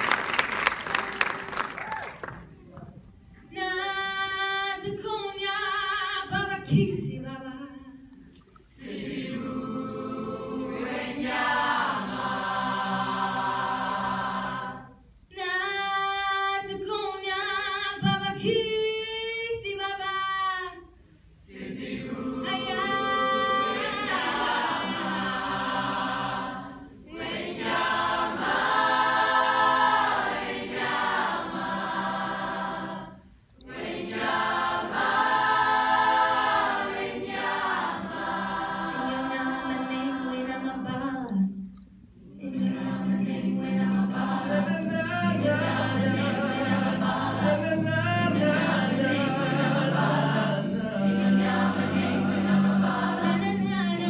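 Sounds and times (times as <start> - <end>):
choir singing: 8.7 - 15.0, 21.4 - 40.8, 42.2 - 54.0.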